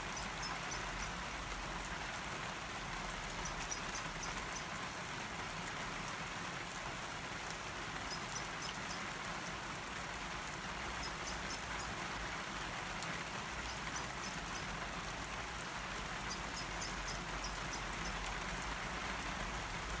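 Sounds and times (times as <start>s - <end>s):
heavy rain: 0.0s - 20.0s.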